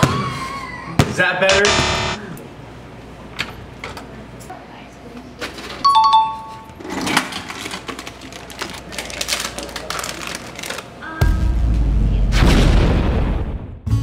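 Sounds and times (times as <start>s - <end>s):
plastic chip bag crinkling: 7.2s - 11.0s
music with deep boom: 11.2s - 14.0s.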